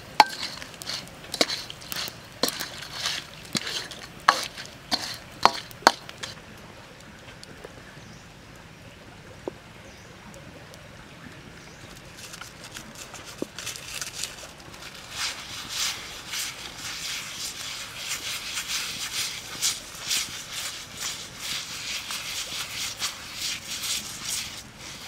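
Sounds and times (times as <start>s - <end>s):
spatula scraping a metal wok: 0.0s - 6.4s, 14.9s - 25.0s
wood fire crackling: 0.0s - 7.8s, 10.6s - 25.0s.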